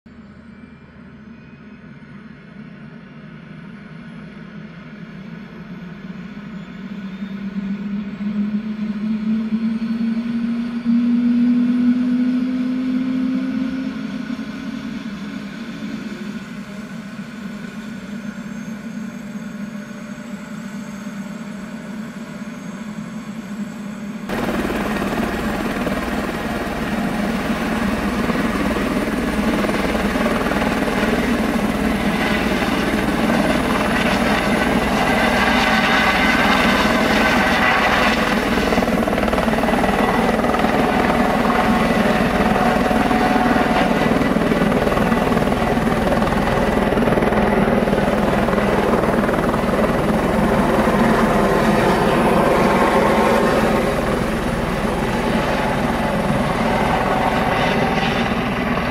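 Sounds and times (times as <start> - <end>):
helicopter turbine whine: 0.1 - 58.9
rotor blade beat: 24.3 - 51.7.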